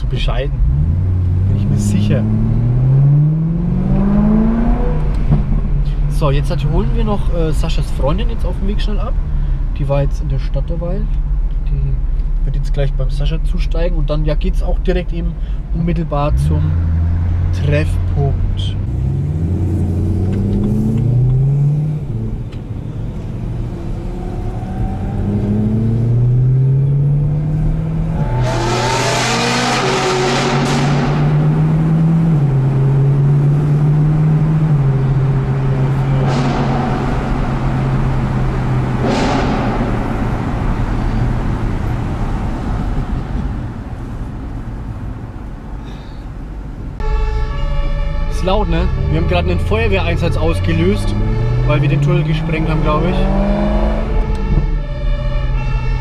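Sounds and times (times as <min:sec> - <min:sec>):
car engines revving at full throttle: 0:00.0 - 0:07.4, 0:16.3 - 0:45.8, 0:49.0 - 0:54.7
exhaust crackling: 0:16.6 - 0:47.0.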